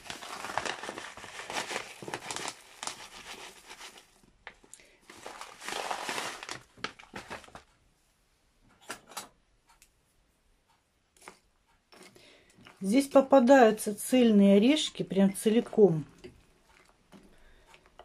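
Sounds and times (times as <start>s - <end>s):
plastic packet crinkling: 0.0s - 7.7s.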